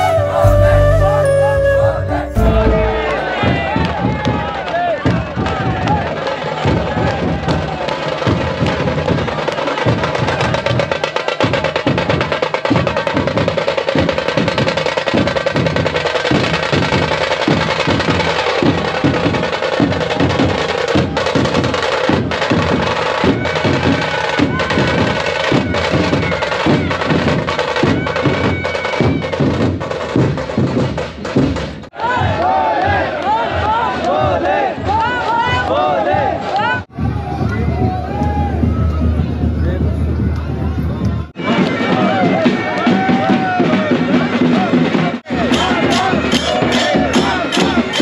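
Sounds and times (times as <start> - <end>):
crowd noise: 0.0 - 13.9, 31.9 - 48.0
dhol drums beaten with sticks: 2.4 - 32.3, 41.4 - 48.0.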